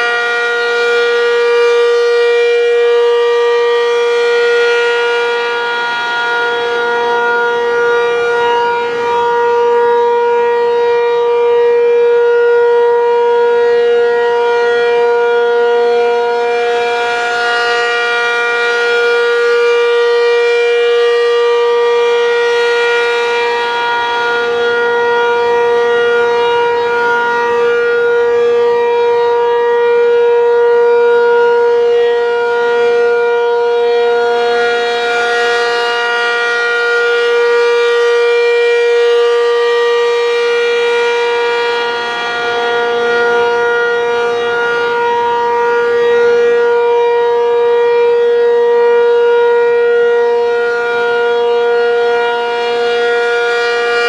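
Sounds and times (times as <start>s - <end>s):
rotating warning siren steady tone: 0.0s - 54.0s.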